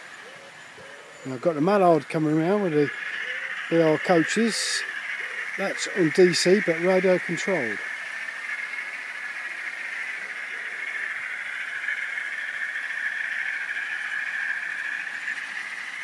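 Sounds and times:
model trains whirring: 0:00.0 - 0:16.0.

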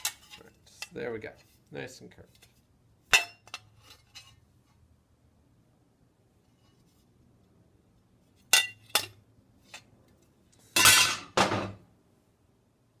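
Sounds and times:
steel sheet striking metal stake: 0:03.1 - 0:03.7.

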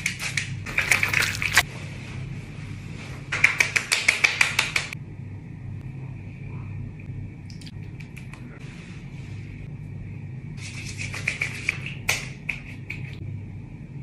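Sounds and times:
faint steady hum: 0:00.0 - 0:14.0
hands patting face: 0:03.3 - 0:05.0, 0:10.6 - 0:13.2.

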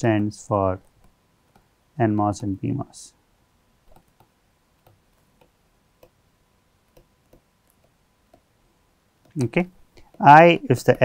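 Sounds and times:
stylus tapping on pen tablet: 0:03.9 - 0:06.2, 0:06.9 - 0:08.5.

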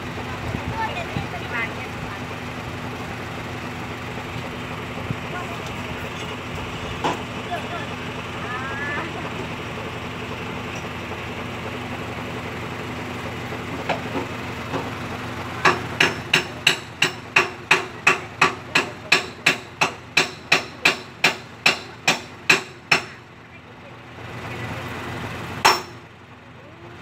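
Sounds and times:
truck engine idling: 0:00.0 - 0:27.0
hammer striking metal: 0:15.6 - 0:23.2, 0:25.6 - 0:26.0.

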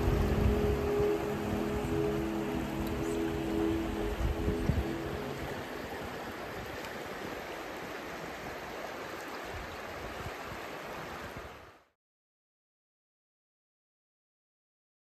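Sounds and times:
river water rushing over rocks: 0:00.0 - 0:11.8.

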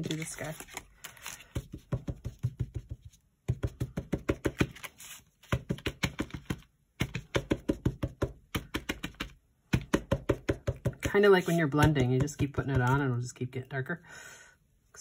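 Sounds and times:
ink pad tapping on cardstock: 0:05.5 - 0:11.2.

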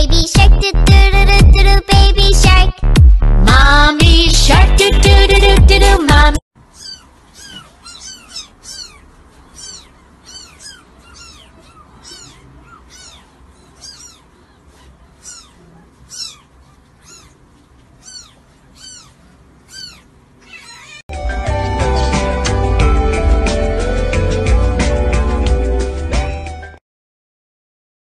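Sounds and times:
kittens mewing: 0:06.6 - 0:21.0.

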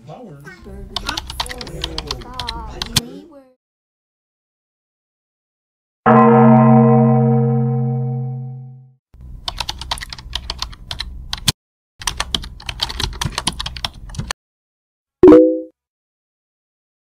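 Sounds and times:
loud pitched note: 0:06.1 - 0:08.9.

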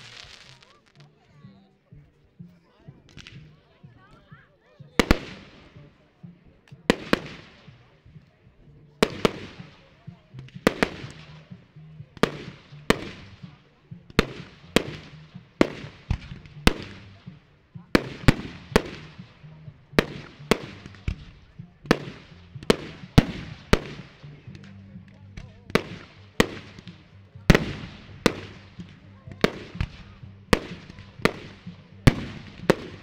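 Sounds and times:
firework shells bursting: 0:00.0 - 0:01.1.

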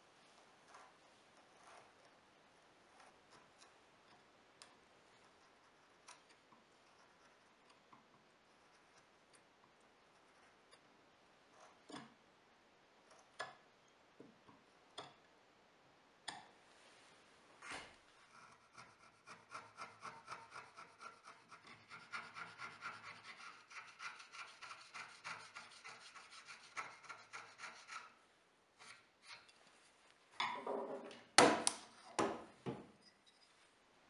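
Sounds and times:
chisel scraping wood: 0:00.4 - 0:04.2, 0:11.5 - 0:12.2, 0:17.6 - 0:28.2, 0:28.8 - 0:29.6
wood knocking on bench: 0:32.2 - 0:32.9.

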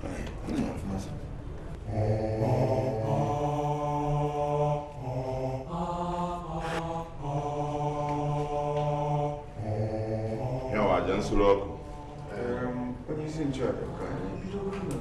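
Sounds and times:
man chanting: 0:10.5 - 0:14.3.

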